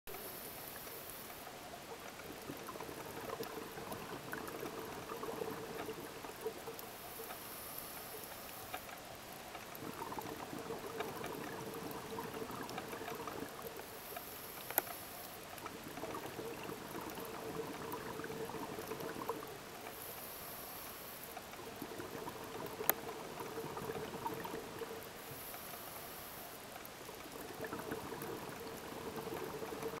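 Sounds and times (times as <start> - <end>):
regulator inhale hiss: 0.1 - 1.5, 6.9 - 8.8, 13.8 - 15.4, 19.9 - 21.4, 25.2 - 26.6
bubbling exhaust: 27.4 - 30.0.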